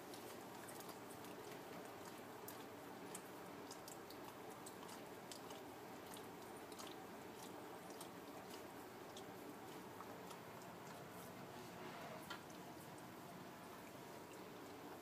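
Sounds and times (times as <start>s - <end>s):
puppies suckling: 0.0s - 11.5s
low steady hiss: 0.0s - 15.0s.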